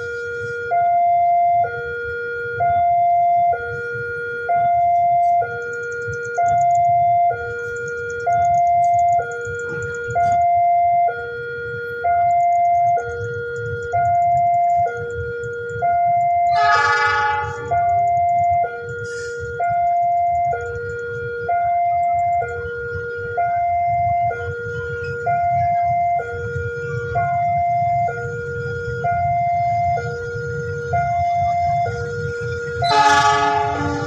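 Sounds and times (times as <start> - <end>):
level crossing two-tone alarm: 0.0 - 34.0
train horn blast: 16.4 - 18.0, 31.6 - 34.0.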